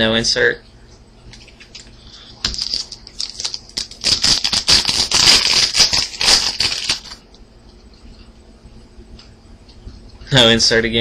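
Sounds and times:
wrapper crinkling and tearing: 1.4s - 7.2s.

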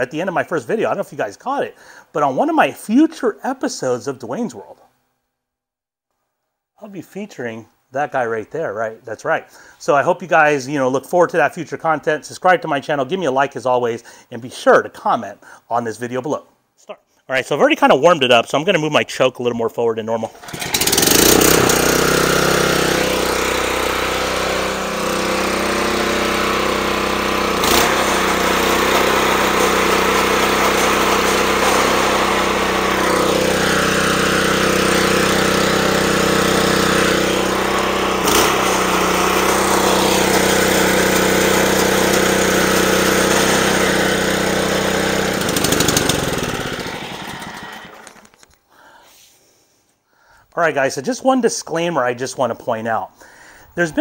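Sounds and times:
mower engine running: 20.4s - 48.3s.

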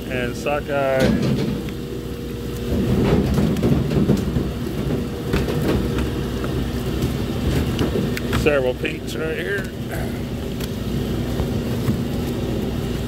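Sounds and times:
low machinery rumble: 0.0s - 13.0s.

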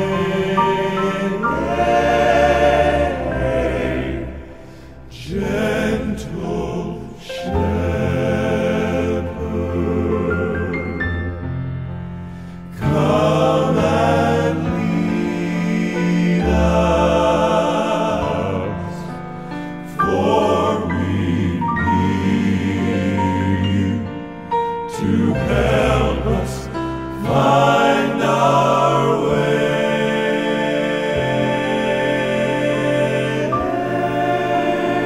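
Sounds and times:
male quartet singing in harmony: 0.0s - 35.0s
musical accompaniment: 0.0s - 35.0s.

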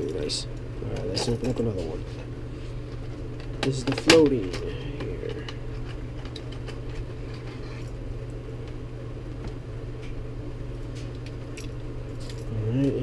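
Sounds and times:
steady low hum: 0.0s - 13.0s
plastic boxes clicking and rustling: 3.4s - 7.0s.

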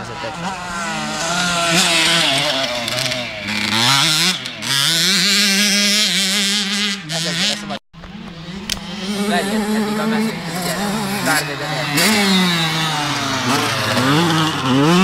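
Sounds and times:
motocross bike engines revving: 0.0s - 15.0s.

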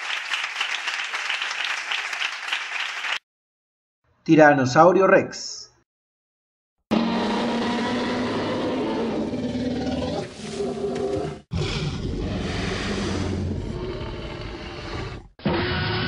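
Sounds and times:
deep growling dinosaur roar: 6.9s - 16.0s.

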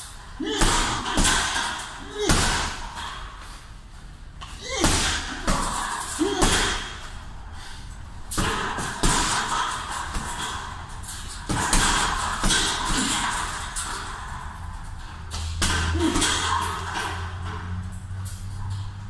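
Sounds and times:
punches thudding on heavy bag: 0.4s - 3.0s, 4.6s - 7.1s, 8.3s - 10.8s, 11.4s - 13.7s.

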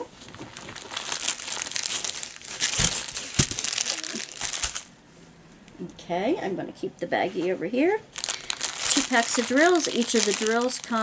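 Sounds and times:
plastic packaging crinkling: 0.1s - 4.9s, 8.1s - 11.0s.

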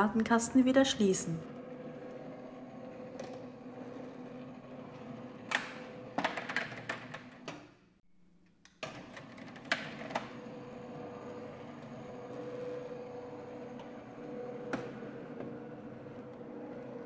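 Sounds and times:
roller-shutter motor humming: 1.4s - 5.5s.

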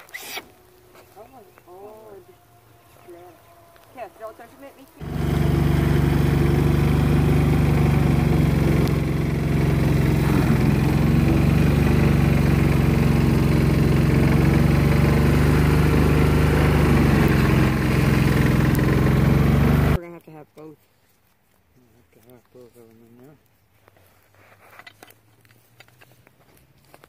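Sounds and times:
motor droning: 0.0s - 20.0s.

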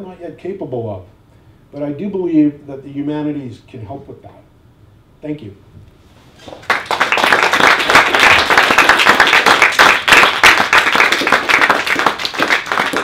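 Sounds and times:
audience clapping: 6.4s - 13.0s.

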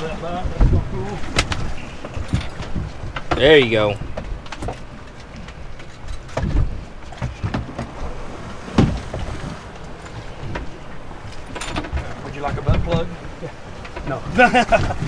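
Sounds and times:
water against hull: 0.0s - 15.0s
wind: 0.0s - 15.0s.

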